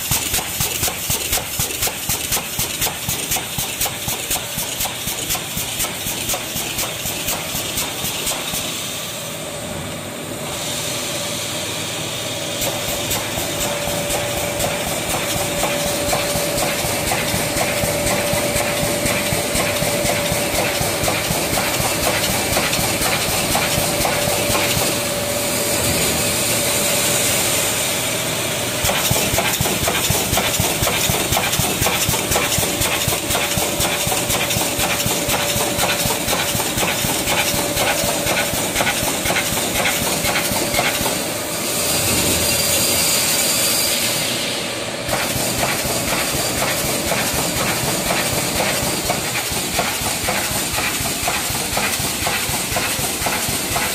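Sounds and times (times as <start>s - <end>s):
welding clicks and crackle: 0.0s - 8.4s
machine hum and hiss: 0.0s - 53.9s.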